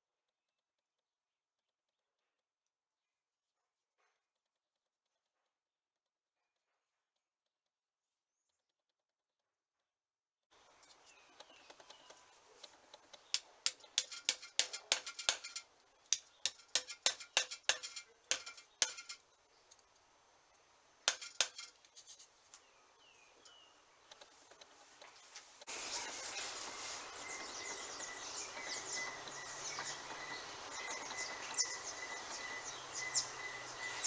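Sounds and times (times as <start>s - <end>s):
hammer tapping on metal: 13.2s - 19.2s, 21.1s - 21.8s.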